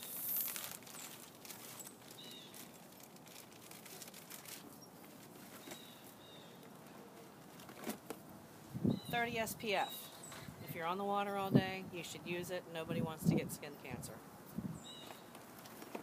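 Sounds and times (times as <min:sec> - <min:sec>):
distant bird chirps: 0:04.7 - 0:06.7, 0:08.8 - 0:10.6, 0:14.8 - 0:15.4.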